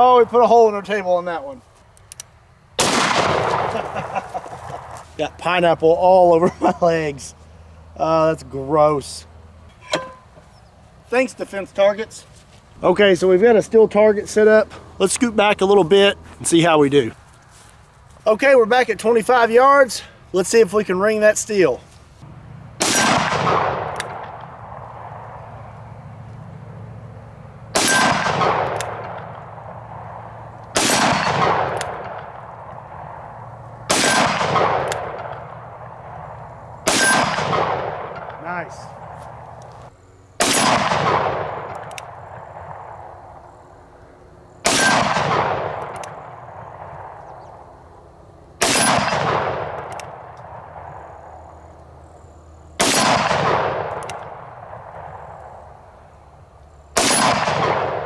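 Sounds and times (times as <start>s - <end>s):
steel target ringing: 9.7s - 10.4s.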